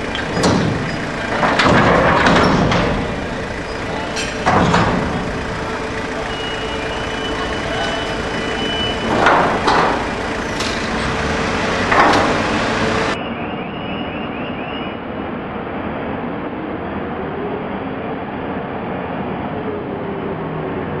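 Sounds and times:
high steady tone: 0:00.0 - 0:13.2
loud metal clanks: 0:00.0 - 0:13.2
crane machinery running: 0:00.0 - 0:13.3.

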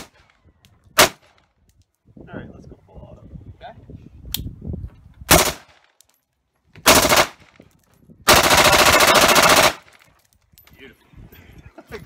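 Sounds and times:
carbine firing full auto bursts: 0:06.9 - 0:07.4, 0:08.3 - 0:09.9.

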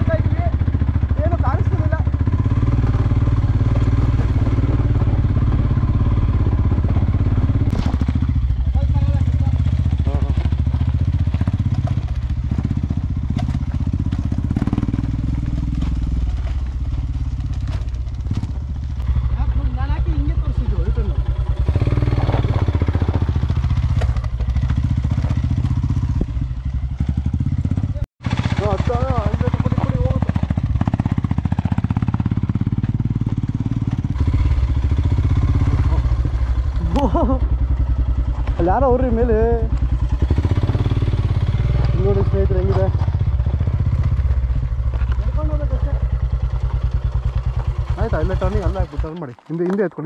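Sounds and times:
motorcycle engine under load: 0:00.0 - 0:50.0
clatter of bike over stones: 0:07.6 - 0:08.3, 0:10.1 - 0:19.1, 0:22.0 - 0:34.3, 0:41.6 - 0:50.0.

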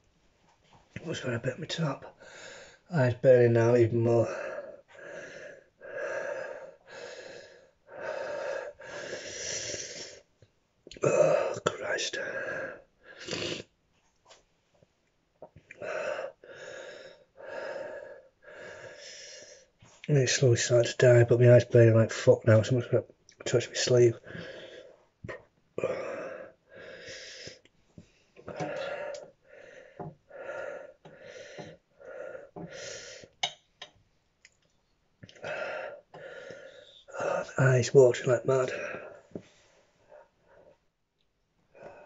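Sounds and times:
man breathing hard through mouth: 0:04.4 - 0:10.2, 0:25.8 - 0:33.4, 0:35.3 - 0:37.2.

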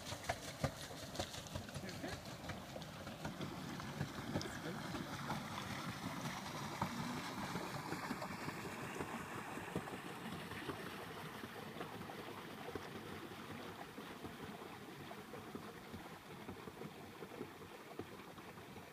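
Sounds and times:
paddle wheel splashing water: 0:00.0 - 0:18.9.

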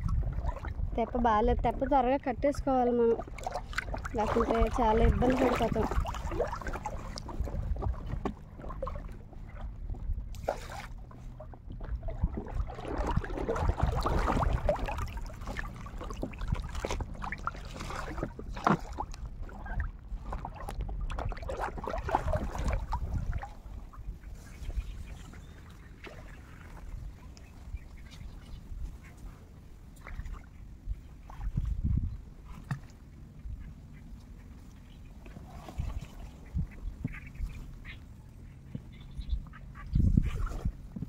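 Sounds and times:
water sloshing and splashing: 0:00.0 - 0:41.0.

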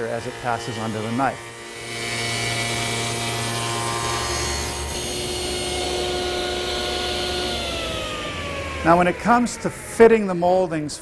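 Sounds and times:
table saw running: 0:00.0 - 0:11.0
molding machine running: 0:03.3 - 0:10.6.

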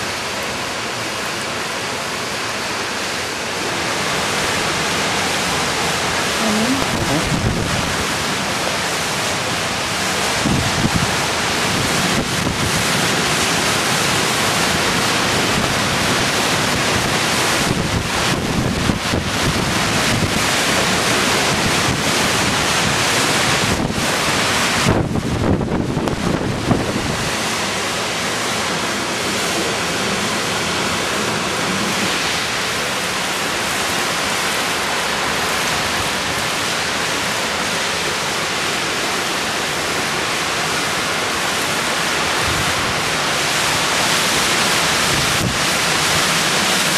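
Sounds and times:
roaring wind and rain: 0:00.0 - 0:46.9
wind buffeting microphone: 0:06.8 - 0:08.4, 0:10.2 - 0:13.0, 0:16.7 - 0:27.6, 0:45.0 - 0:46.3.

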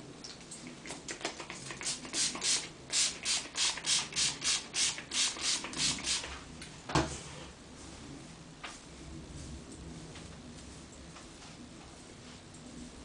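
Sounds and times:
spray bottle hissing sprays: 0:01.5 - 0:06.4.

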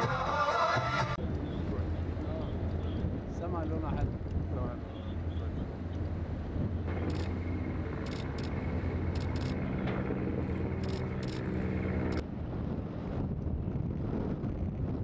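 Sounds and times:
boat engine rumbling: 0:01.1 - 0:15.0
steady hum: 0:01.2 - 0:12.8.

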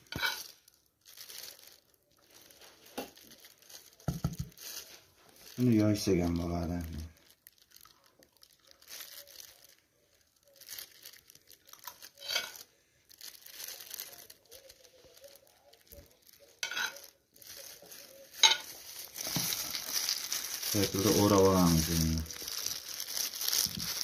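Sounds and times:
metal spoon scraping on dough: 0:12.2 - 0:12.6.

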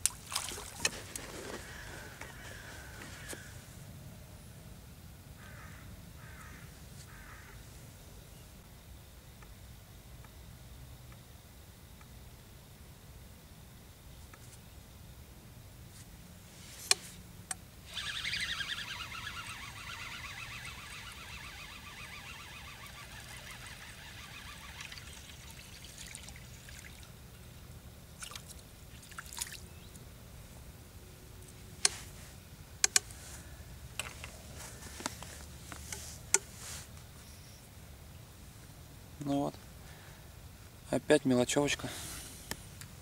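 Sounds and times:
fish splashing on water surface: 0:00.1 - 0:01.0
tackle clicks and taps: 0:32.8 - 0:33.2.

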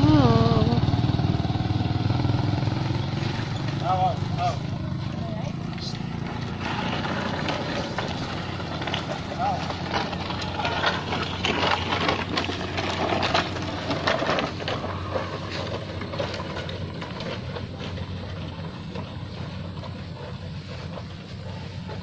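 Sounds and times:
wooden sled scraping on concrete: 0:00.0 - 0:22.0
hoof steps: 0:03.2 - 0:22.0.

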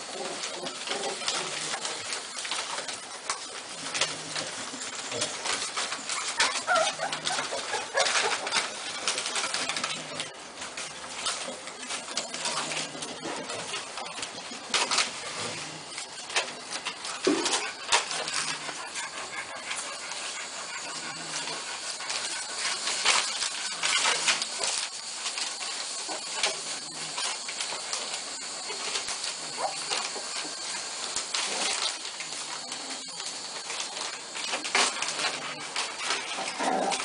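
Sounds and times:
newspaper crackling and rustling: 0:00.0 - 0:37.0
puppy grunts and squeaks: 0:03.7 - 0:24.9, 0:33.9 - 0:37.0.

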